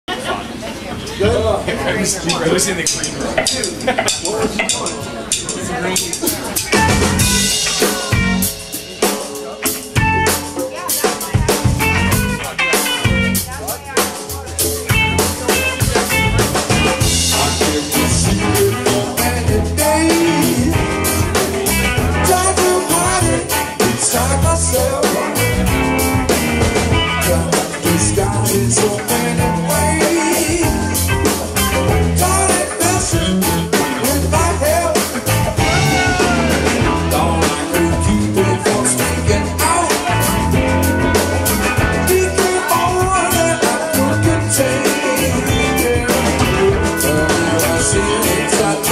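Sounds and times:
electric guitars: 0:00.1 - 0:48.9
bass guitar: 0:01.2 - 0:48.9
drum kit beat: 0:02.3 - 0:48.9.

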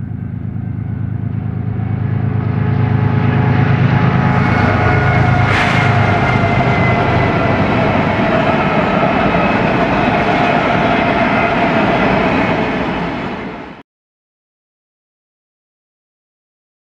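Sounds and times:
deep low drone: 0:00.0 - 0:13.6
freight train rumbling and rattling: 0:00.0 - 0:13.8.

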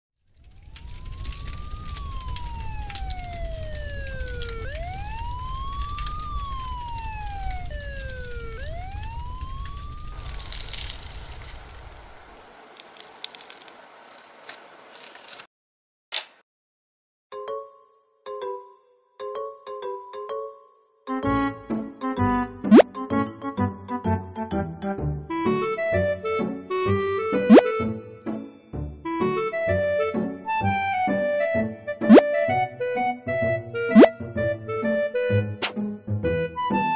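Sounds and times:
crackling hiss: 0:00.3 - 0:15.5
siren wailing: 0:00.4 - 0:12.2, 0:32.0 - 0:32.2, 0:33.9 - 0:34.2.

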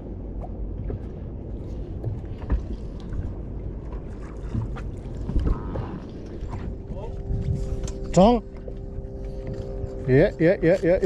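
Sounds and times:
wind on microphone: 0:00.0 - 0:08.2
water against boat hull: 0:00.0 - 0:11.0.

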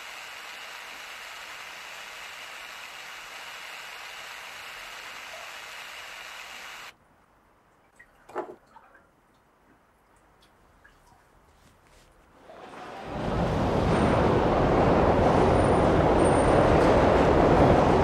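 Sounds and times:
steady rushing hiss: 0:00.0 - 0:06.9.

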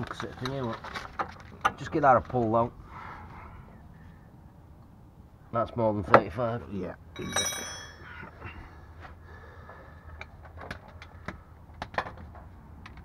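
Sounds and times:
metallic ring: 0:07.2 - 0:08.2
hand tools clicking and clinking: 0:07.2 - 0:08.3.

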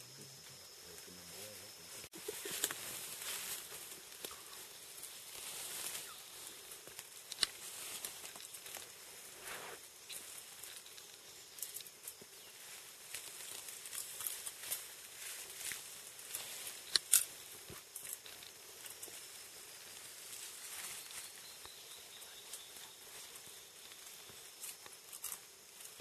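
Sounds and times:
steady hiss: 0:00.0 - 0:26.0
foliage rustling and twig clicks: 0:02.2 - 0:26.0.

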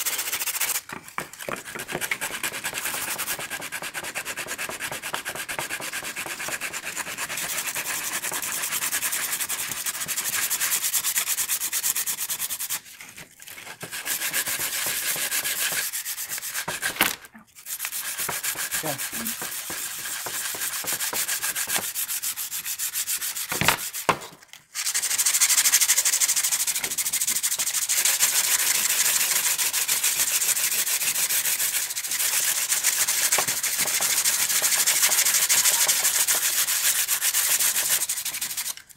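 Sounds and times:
sandpaper rubbing on wood: 0:00.0 - 0:00.9, 0:01.6 - 0:24.2, 0:24.8 - 0:38.8.

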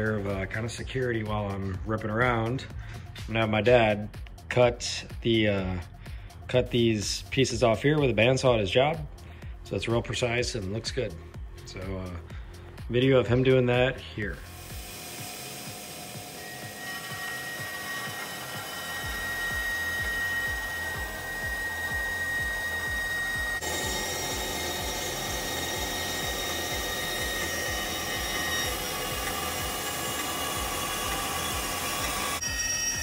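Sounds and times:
bandsaw cutting metal: 0:14.3 - 0:33.0.

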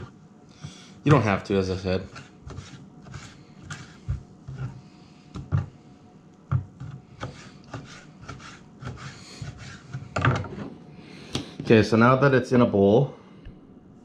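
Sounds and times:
knife rubbing on fish: 0:01.7 - 0:05.7, 0:06.8 - 0:10.1.

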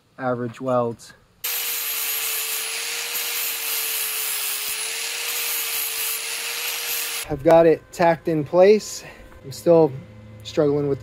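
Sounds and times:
angle grinder sanding metal: 0:01.4 - 0:07.3.

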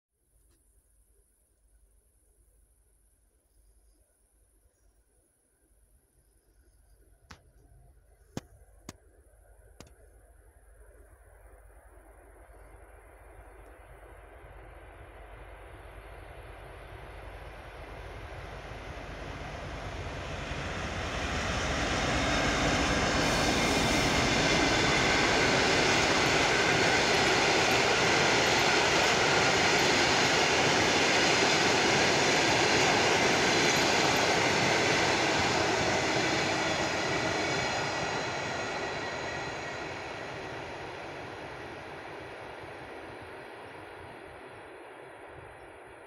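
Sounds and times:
rumble of wheels on rails: 0:08.2 - 0:46.0
diesel locomotive passing: 0:11.2 - 0:46.0.

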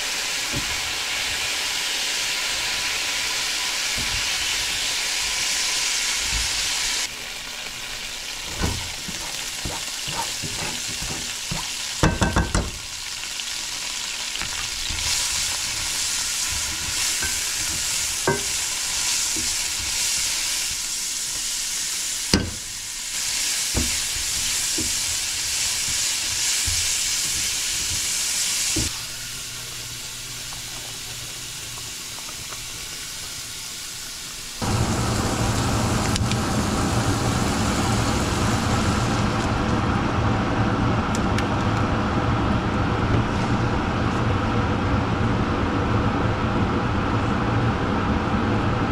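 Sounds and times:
food sizzling in a pan: 0:00.0 - 0:39.5
utensil knocking against pan: 0:09.1 - 0:12.8, 0:17.2 - 0:18.6.

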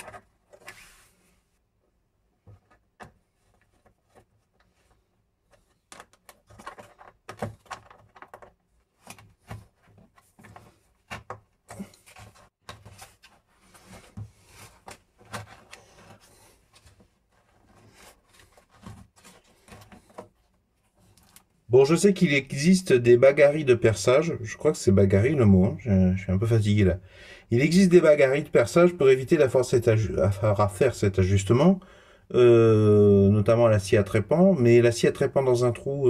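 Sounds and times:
plastic scraping against plaster: 0:02.4 - 0:21.6.

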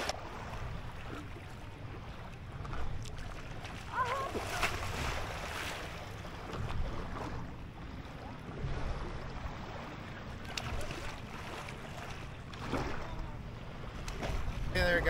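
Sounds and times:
small waves lapping against board: 0:00.0 - 0:15.0
water slap: 0:03.9 - 0:05.7.

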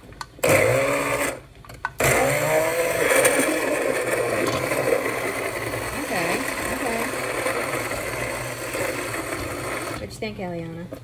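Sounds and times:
immersion blender running: 0:00.4 - 0:01.4, 0:02.0 - 0:10.1.

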